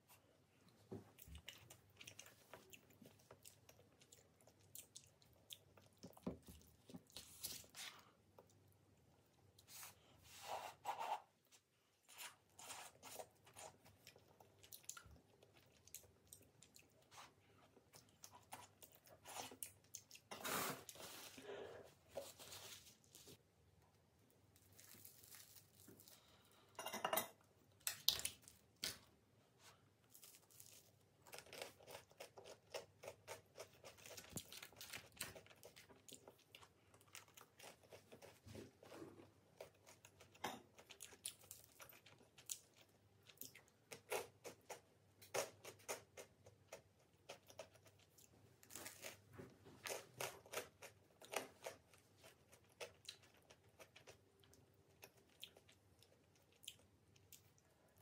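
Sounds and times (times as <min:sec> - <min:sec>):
crusty bread being torn: 0:24.5 - 0:26.4, 0:30.0 - 0:38.4, 0:43.9 - 0:54.3.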